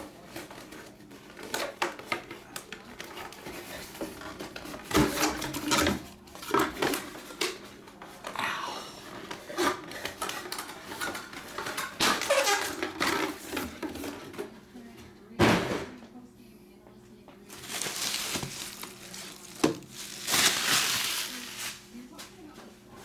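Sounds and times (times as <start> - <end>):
cardboard clattering: 17.5 - 21.8
plastic wrap crinkling: 17.5 - 22.1.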